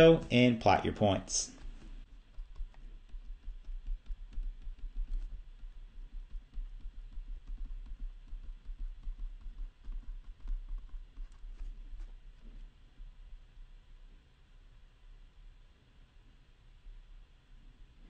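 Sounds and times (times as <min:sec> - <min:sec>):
stylus tapping on a tablet: 0:01.6 - 0:12.1
low rumble of desk knocking: 0:02.0 - 0:11.4.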